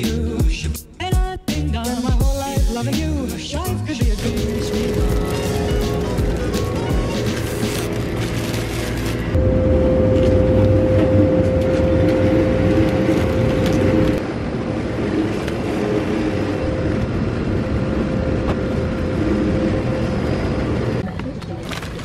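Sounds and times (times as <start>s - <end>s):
refrigerator hum with held tone: 4.1s - 14.2s.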